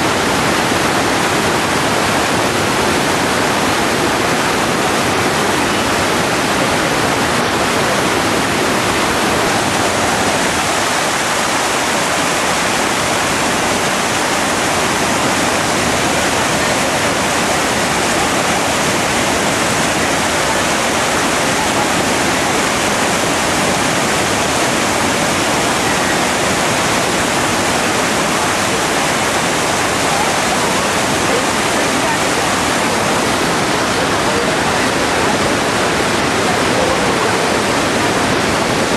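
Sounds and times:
waterfall rushing over rocks: 0.0 - 38.9.

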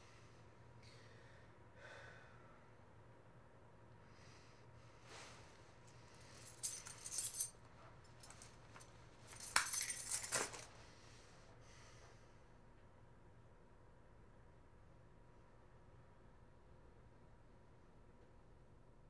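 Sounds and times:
small metal objects clinking: 9.3 - 10.7.

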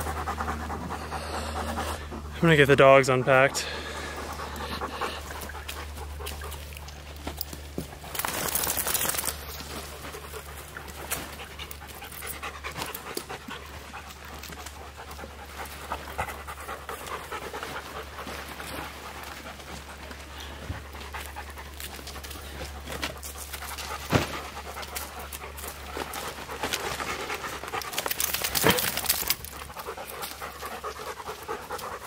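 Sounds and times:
dogs panting hard: 0.0 - 32.0
pack straps and buckles rustling: 7.0 - 10.0.

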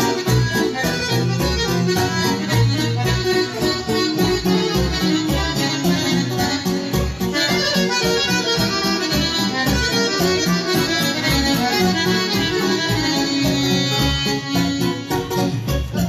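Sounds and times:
button accordion playing: 0.0 - 16.0.

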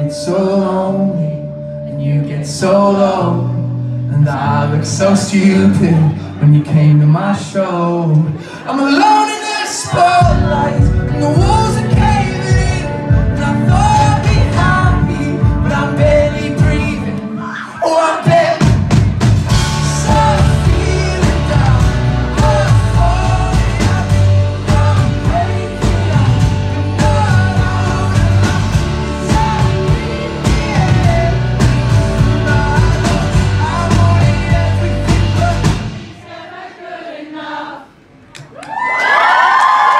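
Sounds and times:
live band playing: 9.8 - 36.4.

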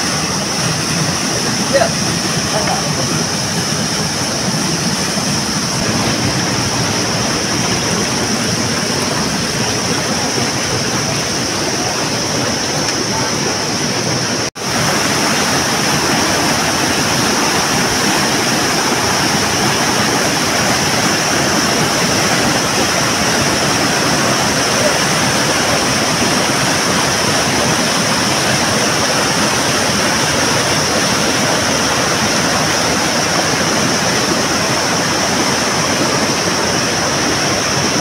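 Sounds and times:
river water rushing over rocks: 0.0 - 38.0.

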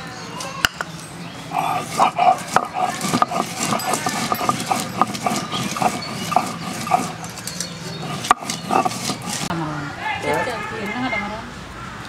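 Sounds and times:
stone grinding and knocking on stone: 1.6 - 7.4, 8.0 - 9.5.

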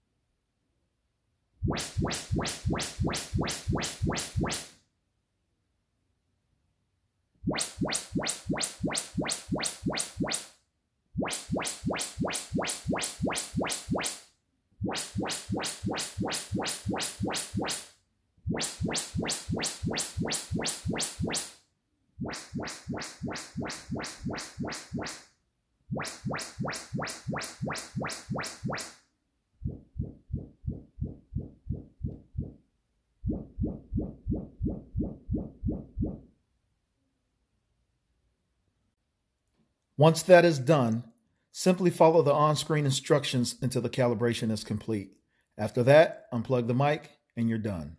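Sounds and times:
rapid test signal pulses: 1.6 - 4.7, 7.5 - 10.5, 11.2 - 17.9, 18.5 - 21.6, 22.2 - 25.3, 25.9 - 29.0
deep bass pulses: 29.6 - 32.6, 33.2 - 36.3.

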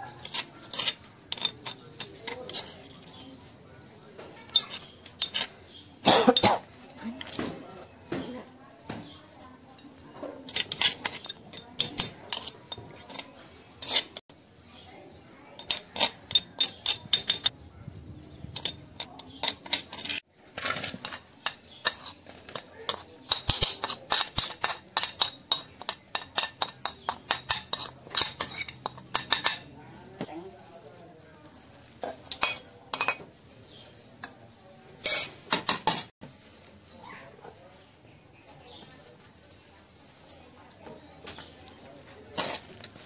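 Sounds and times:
metal spoon scraping ceramic plate: 0.0 - 3.4, 4.4 - 6.6, 9.8 - 14.2, 15.6 - 17.6, 18.5 - 29.8, 32.0 - 34.4, 35.0 - 36.1, 42.3 - 43.0.

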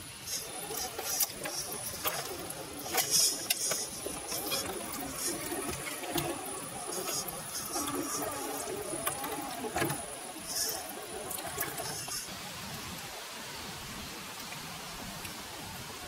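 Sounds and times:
electric motor whining: 0.0 - 12.3
wet tyres in mud: 0.0 - 12.3.

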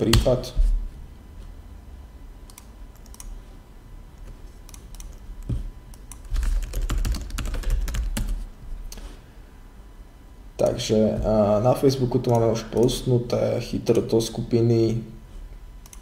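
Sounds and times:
computer keyboard typing: 2.5 - 3.3, 4.2 - 8.4.

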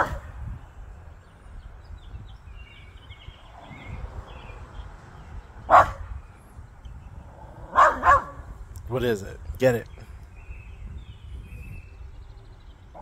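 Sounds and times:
small dog barking: 0.0 - 0.3, 5.7 - 6.0, 7.7 - 8.4.

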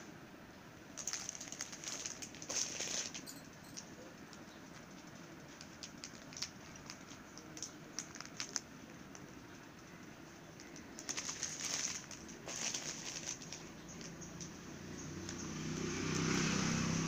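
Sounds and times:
plastic packaging crinkling: 1.0 - 14.5.

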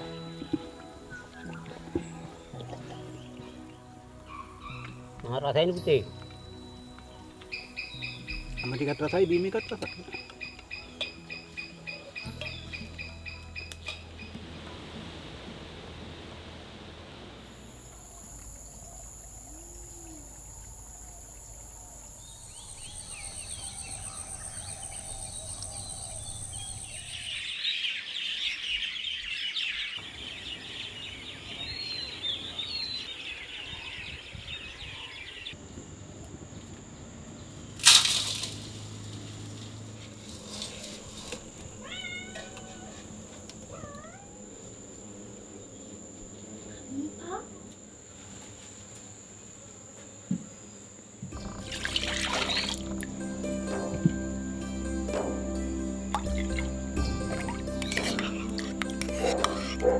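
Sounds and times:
insects trilling: 0.0 - 13.7, 17.2 - 27.7, 35.6 - 59.9
birds chirping: 0.0 - 14.4, 17.8 - 35.8, 51.3 - 59.9.

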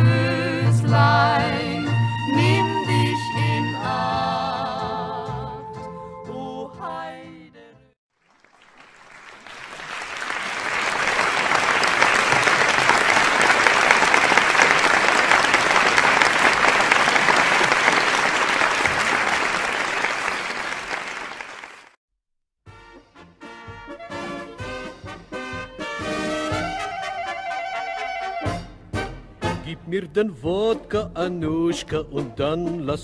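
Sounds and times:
audience applause: 8.2 - 22.0.

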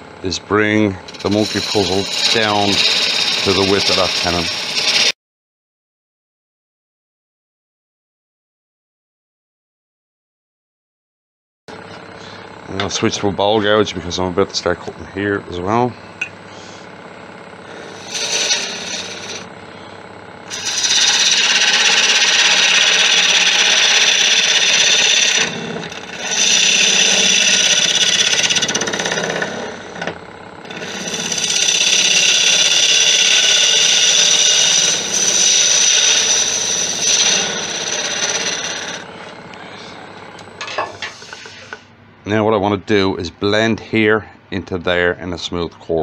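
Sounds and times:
lathe gouge cutting wood: 1.1 - 5.2, 17.7 - 19.5, 20.5 - 39.2.

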